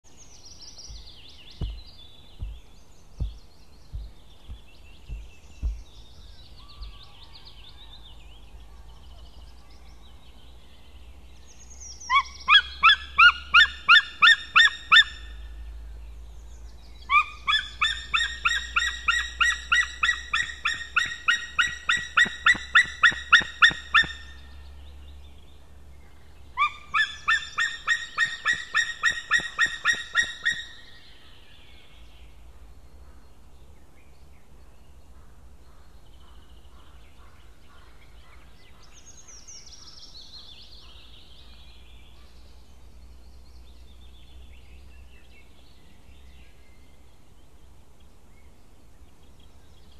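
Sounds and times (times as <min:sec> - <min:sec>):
eagle rapid repeated calls: 0:17.4 - 0:24.2, 0:26.6 - 0:30.7.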